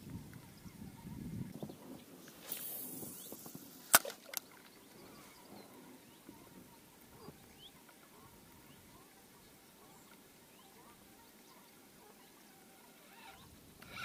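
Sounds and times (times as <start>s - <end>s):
fishing line hissing off reel: 2.2s - 4.5s, 12.7s - 14.0s
reel sharp click: 2.2s - 4.6s.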